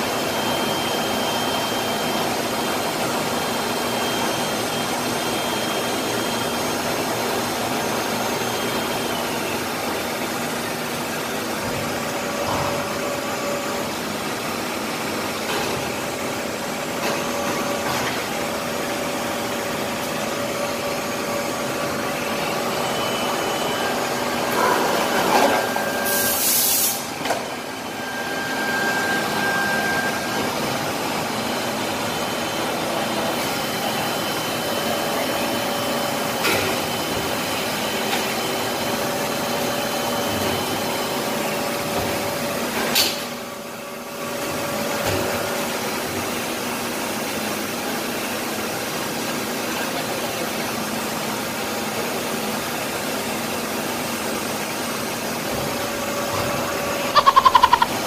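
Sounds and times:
factory machinery drone: 0.0s - 58.0s
faint machine whines: 0.0s - 58.0s.

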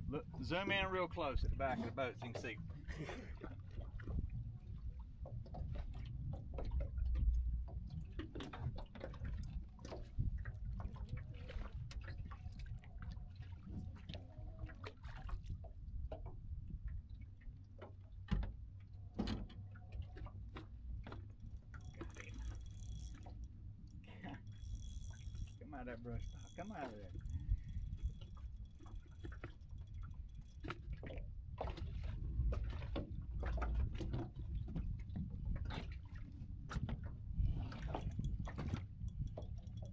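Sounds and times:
waves lapping against a hull: 0.0s - 39.9s
fishing tackle clicking: 21.1s - 30.8s, 37.8s - 39.9s.

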